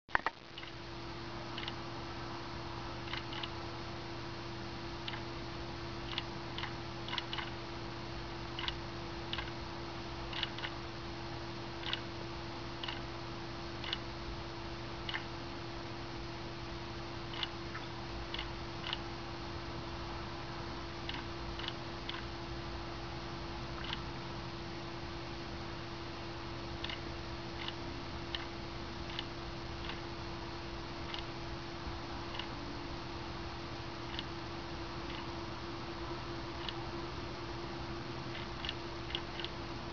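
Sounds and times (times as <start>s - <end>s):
steady hum: 0.1s - 39.9s
wall clock ticking: 1.6s - 1.8s, 3.0s - 3.6s, 6.1s - 7.6s, 8.6s - 9.6s, 10.3s - 10.8s, 11.8s - 12.0s, 12.8s - 13.0s, 13.8s - 14.0s, 15.1s - 15.3s, 17.3s - 17.5s, 18.4s - 19.0s, 21.1s - 22.2s, 32.3s - 32.5s.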